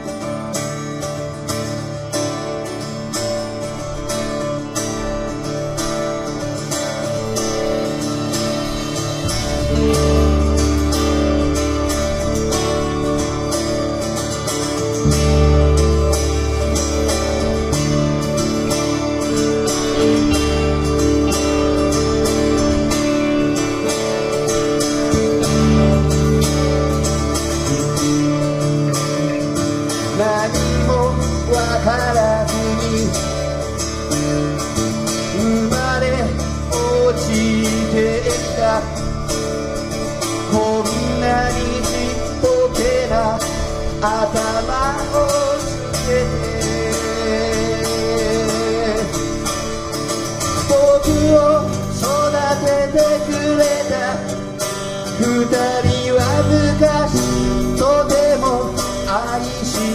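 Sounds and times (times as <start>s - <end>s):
live band playing folk song: 0.0s - 59.9s
person singing: 40.2s - 59.9s.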